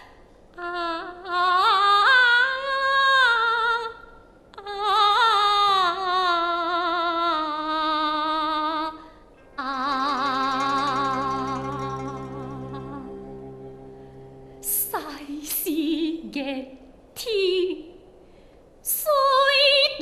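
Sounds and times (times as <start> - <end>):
woman singing opera: 0.6 - 4.0, 4.6 - 9.0, 9.6 - 13.3, 14.6 - 17.8, 18.9 - 20.0
instrumental accompaniment: 9.8 - 16.2.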